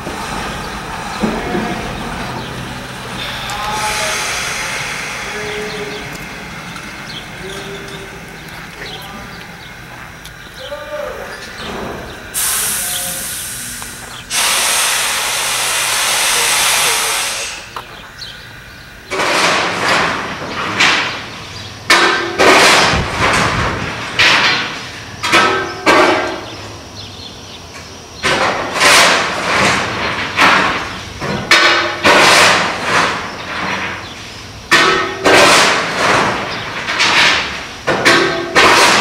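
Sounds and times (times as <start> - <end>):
heavy banging on metal: 34.7 - 39.0.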